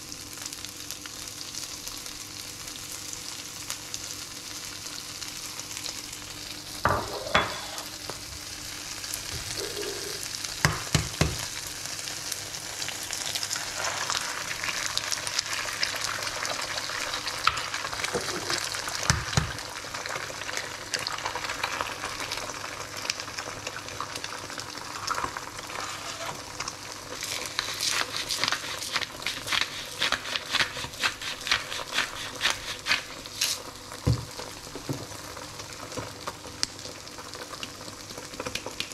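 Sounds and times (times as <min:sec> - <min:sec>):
food sizzling in a frying pan: 0:00.0 - 0:38.9
spatula knocking against pan: 0:10.6 - 0:11.4.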